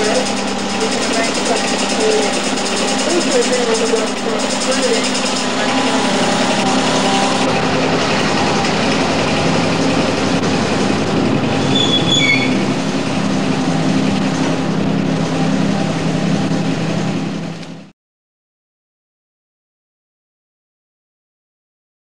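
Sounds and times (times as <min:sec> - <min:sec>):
train wheels and engine rumble: 0:00.0 - 0:17.9
high wheel squeals: 0:11.5 - 0:13.0.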